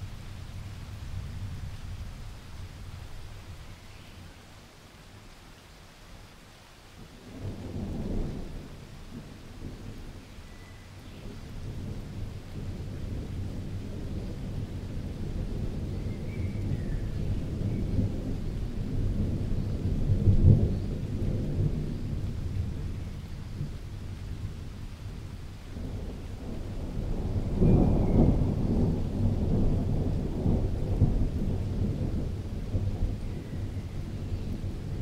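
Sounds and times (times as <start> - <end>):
thunder rumbling: 10.9 - 35.0.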